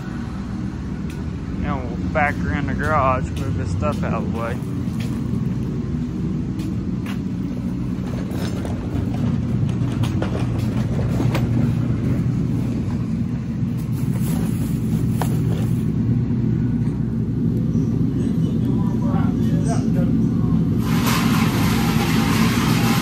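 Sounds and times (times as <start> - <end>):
vehicle engine running: 0.0 - 23.0
light clanks and rattles: 6.5 - 13.1.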